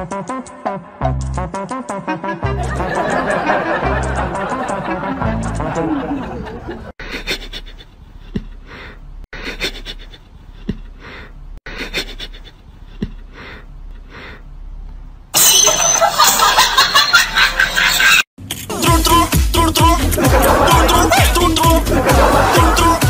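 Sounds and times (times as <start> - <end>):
cat sniffing huffs: 7.0 - 14.4
loud music: 18.7 - 23.0.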